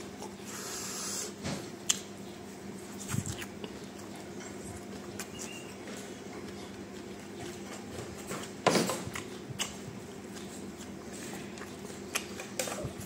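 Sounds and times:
steady low hum: 0.0 - 13.0
person chewing: 2.8 - 13.0.

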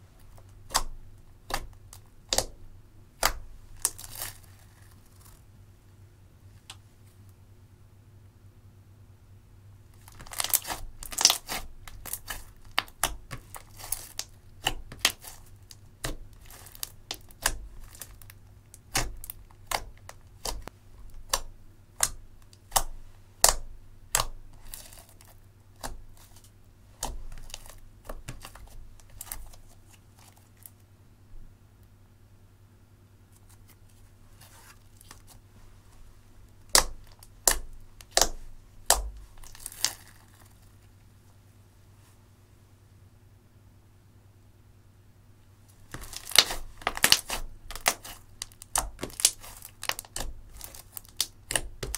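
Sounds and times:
fingers kneading sticky slime: 0.2 - 5.4, 9.9 - 30.8, 36.5 - 40.7, 45.8 - 51.9.

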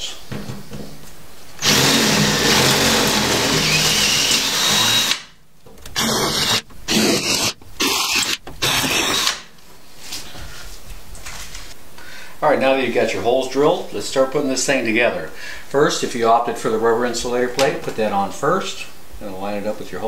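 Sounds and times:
cordless drill boring through metal: 1.6 - 5.2, 5.9 - 9.4.

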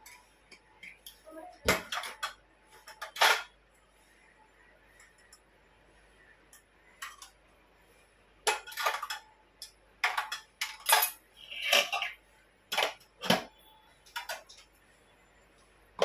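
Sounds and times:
steel utensils clattering: 8.4 - 13.4.

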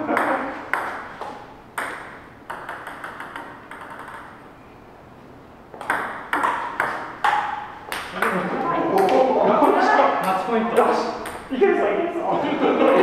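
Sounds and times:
table tennis ball hits: 0.1 - 4.4, 5.7 - 11.5.

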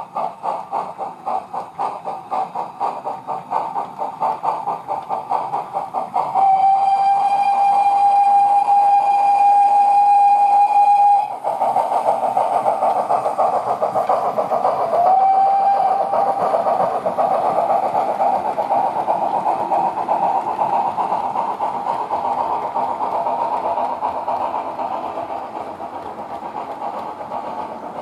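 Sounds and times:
steam locomotive chuffing: 0.0 - 28.0
model train steam whistle: 6.3 - 11.4, 15.0 - 16.2.

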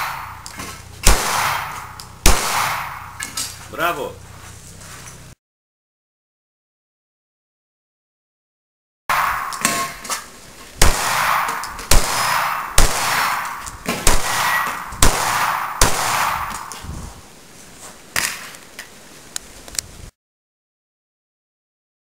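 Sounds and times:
pistol shots with ringing tail: 0.0 - 0.4, 1.0 - 3.3, 9.1 - 10.1, 10.8 - 16.8.

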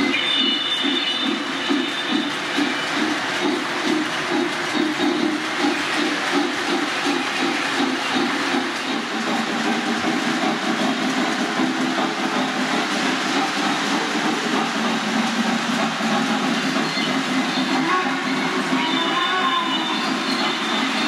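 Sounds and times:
model train wheels rumbling: 0.0 - 21.0.

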